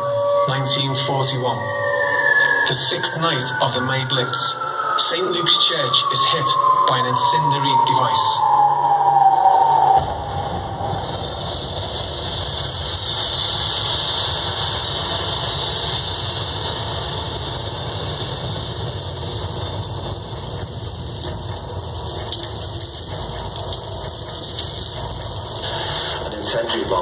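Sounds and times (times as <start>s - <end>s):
air raid siren: 0.0s - 27.0s
steady low rumble: 0.0s - 27.0s
hissing roar: 18.8s - 27.0s.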